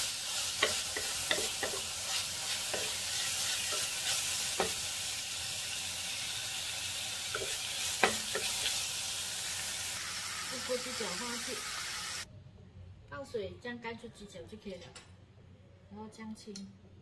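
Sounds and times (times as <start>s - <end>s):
sizzling in hot oil: 0.0s - 12.3s
wooden spatula scraping a pot: 0.3s - 4.9s, 7.3s - 8.8s.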